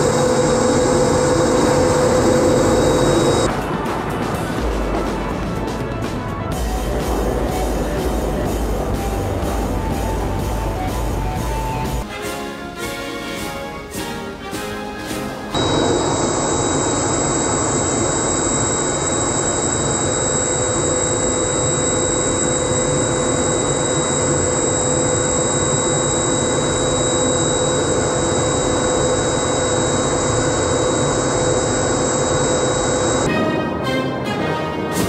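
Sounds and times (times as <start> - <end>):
low hum: 0.0 - 3.5, 15.6 - 33.3
steady high whine: 0.0 - 3.6, 15.6 - 33.3
jet engine and airflow noise: 0.0 - 12.1, 15.4 - 35.0.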